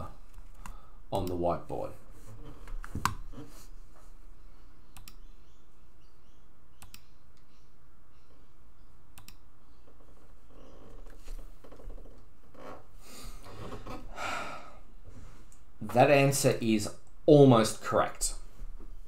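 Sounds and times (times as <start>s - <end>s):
sharp computer clicks: 1.2s - 1.5s, 4.9s - 5.4s, 6.8s - 7.5s, 9.1s - 9.5s.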